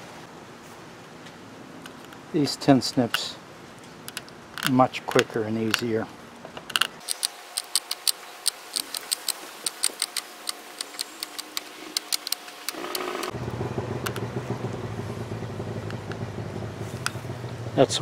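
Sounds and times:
tin snips cutting wire mesh: 0:07.0 - 0:13.3
low engine hum: 0:12.7 - 0:18.0.

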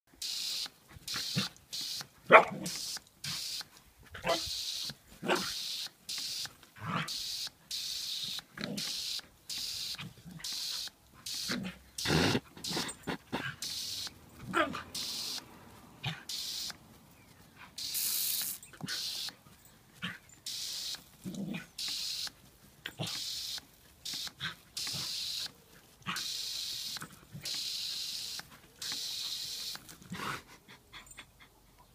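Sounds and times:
hose spray hissing: 0:00.1 - 0:14.2, 0:14.8 - 0:15.5, 0:16.1 - 0:16.8, 0:17.8 - 0:19.4, 0:20.4 - 0:21.2, 0:21.8 - 0:29.9
dog barking: 0:02.3 - 0:02.6, 0:04.2 - 0:04.4.

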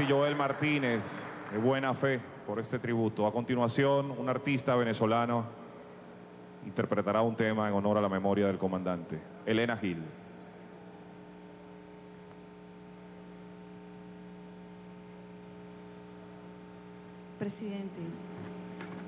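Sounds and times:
man speaking: 0:00.0 - 0:05.6, 0:06.6 - 0:10.2
electrical mains hum: 0:00.0 - 0:19.0.

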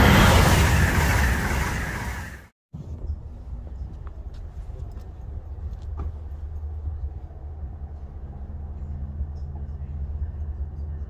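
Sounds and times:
heavy low rumble: 0:00.0 - 0:11.0
train engine hum: 0:00.0 - 0:11.0.

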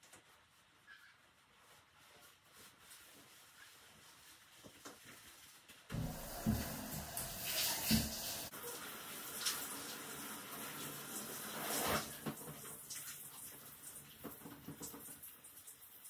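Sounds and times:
water splashing in shower stall: 0:01.6 - 0:16.0
shower head spraying water: 0:05.9 - 0:08.5.

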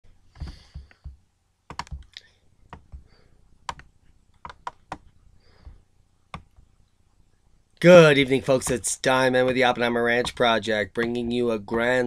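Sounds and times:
keyboard and mouse clicks: 0:00.4 - 0:03.0, 0:03.7 - 0:05.1.

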